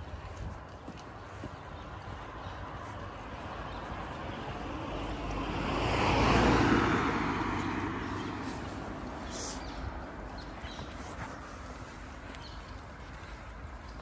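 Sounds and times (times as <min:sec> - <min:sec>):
car passing by: 0:03.3 - 0:12.2.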